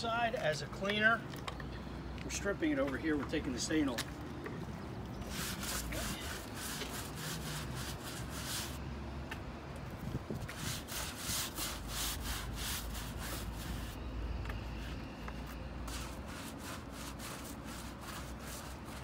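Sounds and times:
scrubbing wooden boards: 5.3 - 8.8, 10.5 - 14.0, 15.9 - 19.0.

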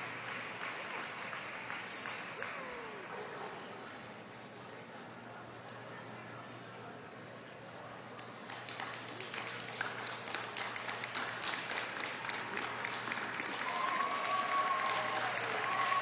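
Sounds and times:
audience applauding: 0.0 - 3.4, 8.2 - 16.0.

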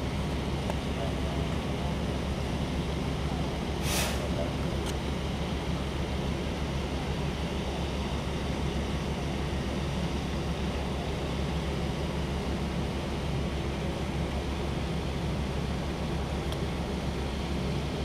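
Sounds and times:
fire pump engine drone: 0.0 - 18.0
water spray hiss: 3.8 - 4.3.

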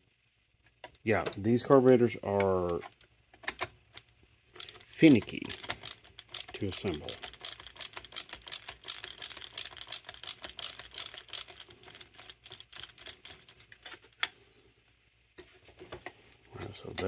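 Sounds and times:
small metal parts clicking: 2.6 - 14.3.

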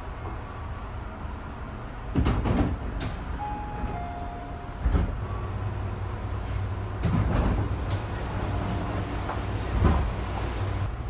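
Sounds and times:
train car low hum: 0.0 - 11.0
sliding doors thumping shut: 2.1 - 3.4, 7.0 - 10.7
two-tone falling door chime: 3.4 - 4.9.

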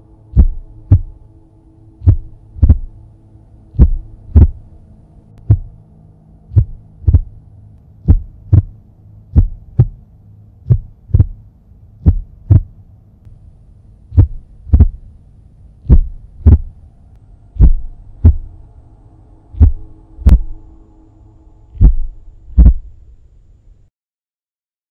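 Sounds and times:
low steady drone: 0.0 - 23.9
heartbeat thumps: 0.3 - 1.2, 2.0 - 3.0, 3.8 - 4.6, 5.4 - 5.7, 6.5 - 7.4, 8.0 - 10.0, 10.6 - 12.8, 14.1 - 15.0, 15.8 - 16.8, 17.6 - 18.6, 19.6 - 20.6, 21.8 - 22.9.

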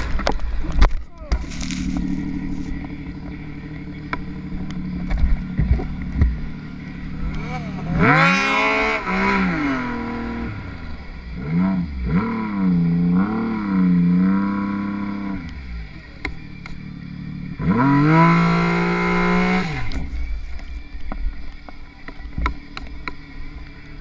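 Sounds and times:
snowmobile engine revving: 1.4 - 16.0, 17.2 - 20.1.

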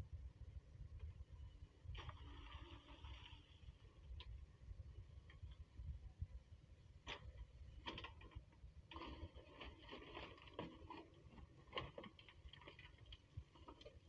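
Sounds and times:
faint low rumble: 0.0 - 14.0
stones and soil crackling: 1.9 - 4.4, 7.0 - 14.0.

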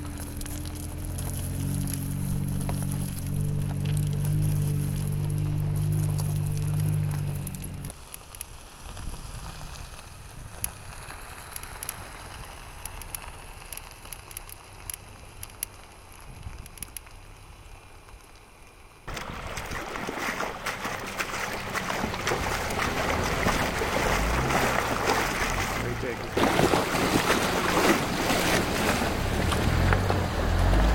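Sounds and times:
gravel ticks: 0.0 - 26.4
tyres rumbling on dirt road: 0.0 - 30.9
water rushing and splashing: 19.1 - 30.9.

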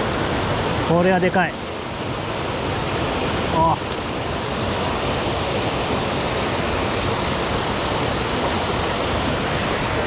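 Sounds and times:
small waterfall pouring into pool: 0.0 - 10.0.

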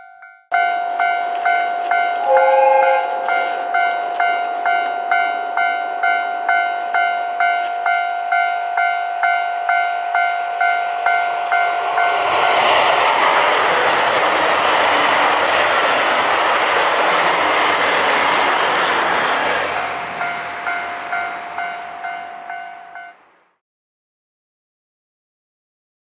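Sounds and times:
level crossing bell ringing: 0.0 - 12.6, 19.7 - 23.2
diesel train arriving: 0.5 - 23.6
two-note train horn: 0.7 - 8.2.

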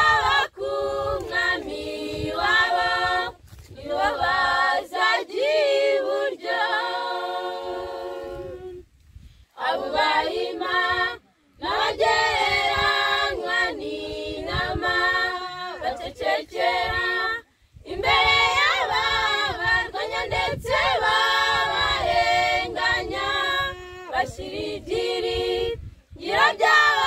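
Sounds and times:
women's choir singing a cappella: 0.0 - 8.9, 9.5 - 27.0.

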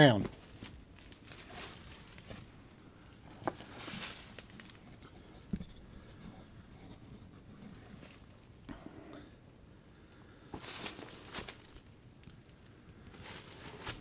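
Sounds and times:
rustling of leaves and branches: 0.2 - 5.0, 10.3 - 14.0.

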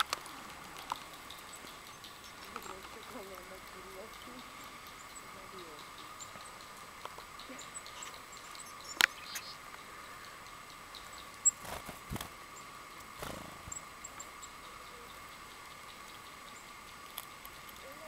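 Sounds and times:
small high chirps: 0.0 - 11.7
faint high hum: 0.0 - 18.0.

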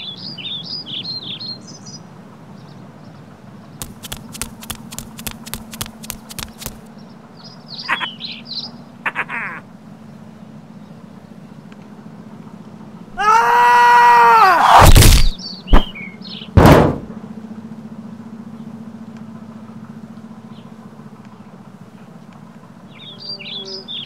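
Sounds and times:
quick bird-like chirps: 3.8 - 6.9
high cry falling in pitch: 13.2 - 15.3
heavy thuds: 14.8 - 16.0.

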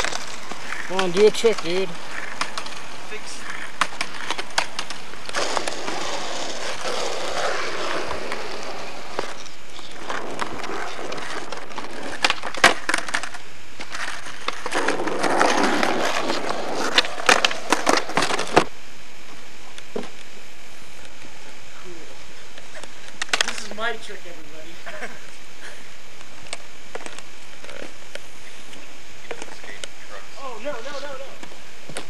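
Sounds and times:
skateboard clacking on pavement: 0.0 - 18.7
skateboard wheels on asphalt: 0.0 - 20.2, 22.4 - 24.5.

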